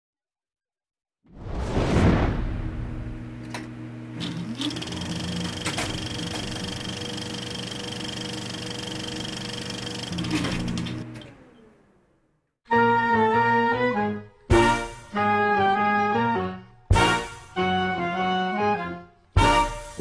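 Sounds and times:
whoosh: 1.3 - 3.4
film projector whirring: 3.4 - 11.9
film projector clicks: 3.5 - 11.4.

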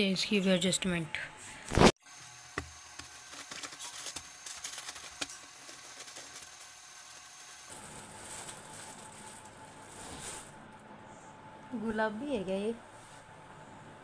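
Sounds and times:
cloth and bags rustling: 7.7 - 10.6.

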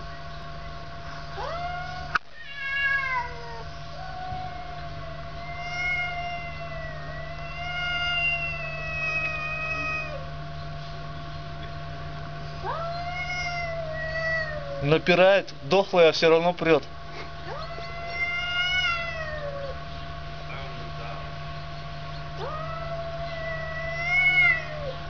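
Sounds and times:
steady background hum: 0.0 - 25.0
cat yowling: 1.4 - 10.3, 12.6 - 15.1, 17.5 - 19.8, 22.4 - 25.0.

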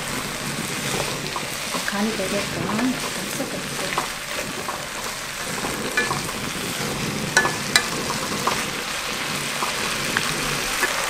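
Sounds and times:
vegetables sizzling in a wok: 0.0 - 11.0
utensils clicking against pan: 0.8 - 11.0.

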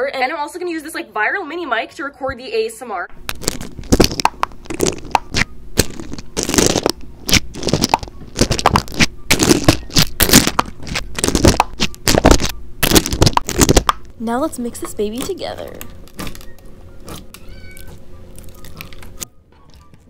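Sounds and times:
beads in slime crunching: 3.3 - 14.0, 15.1 - 19.2.

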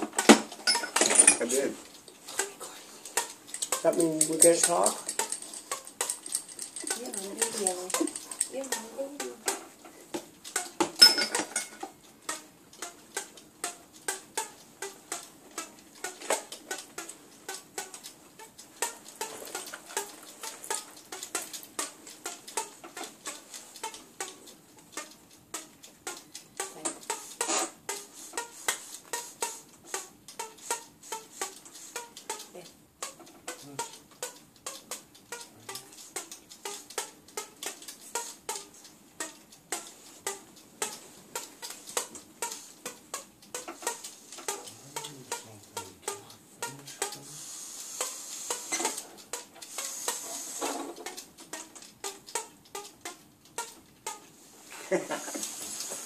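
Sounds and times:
fishing line plucked: 38.1 - 47.4.

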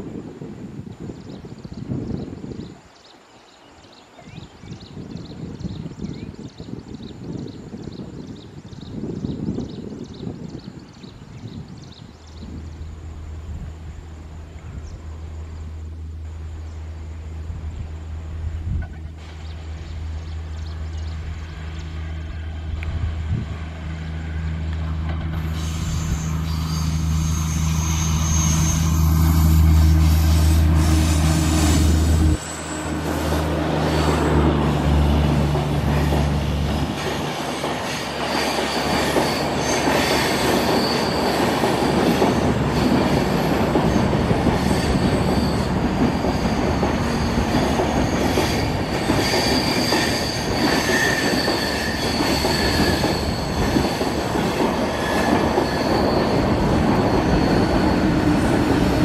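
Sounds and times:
locomotive hum: 12.1 - 59.0
train wheel noise: 12.4 - 59.0
high-pitched wheel squeal: 25.4 - 34.2, 37.8 - 43.0, 43.9 - 59.0.

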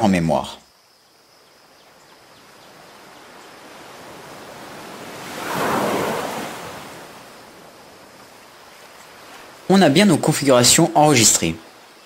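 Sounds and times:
rushing hiss: 5.2 - 7.4.

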